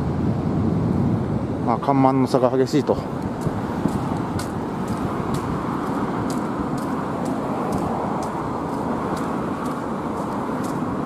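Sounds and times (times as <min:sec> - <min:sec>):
cars and bus driving past: 0:02.9 - 0:11.0
footsteps on pavement: 0:03.2 - 0:11.0.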